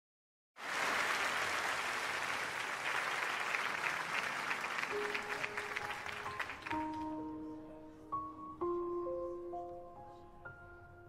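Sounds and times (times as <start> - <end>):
crowd clapping and cheering: 0.6 - 7.2
soft sustained musical notes: 4.9 - 11.0.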